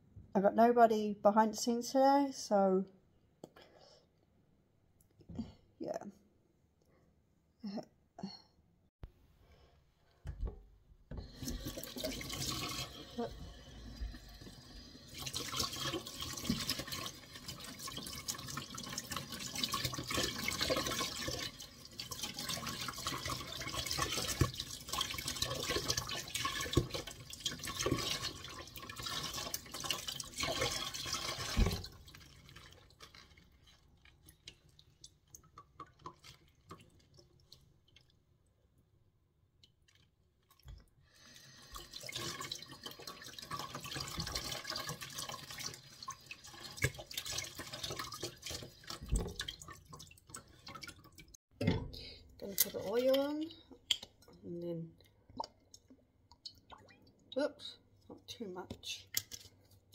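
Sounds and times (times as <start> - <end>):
tap water running into sink: 10.3 - 33.2, 40.6 - 51.8
water splashing: 15.1 - 38.1.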